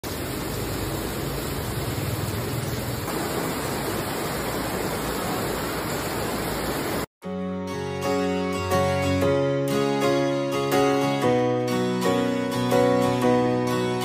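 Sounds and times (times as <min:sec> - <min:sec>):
heavy rain on pavement: 0:00.0 - 0:07.1.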